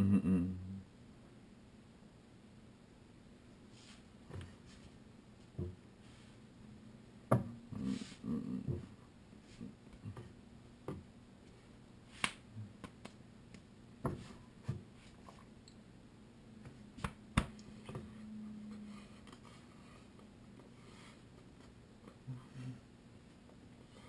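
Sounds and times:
faint low hum: 0.0s - 24.0s
hand clicks and slaps: 12.2s - 13.6s, 16.6s - 17.7s.

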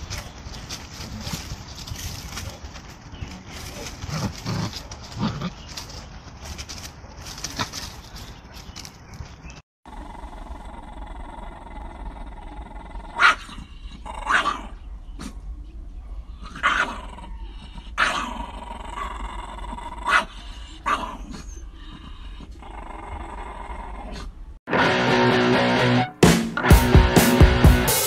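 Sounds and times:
dogs growling and snarling: 3.4s - 5.8s, 9.9s - 15.5s, 16.3s - 24.4s.

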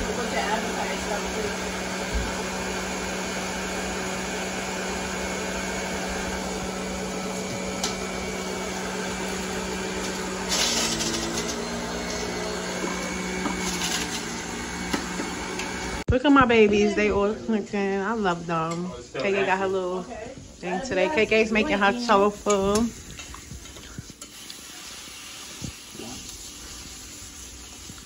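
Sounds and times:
juicer motor whirring: 0.0s - 16.1s.

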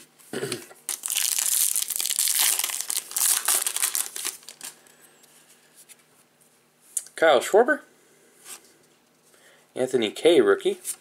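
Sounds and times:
plastic wrapper crinkling: 0.9s - 4.8s.

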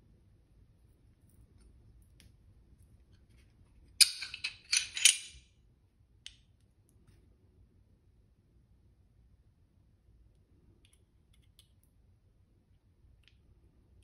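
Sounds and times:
pistol parts clicking and scraping: 4.0s - 5.4s.

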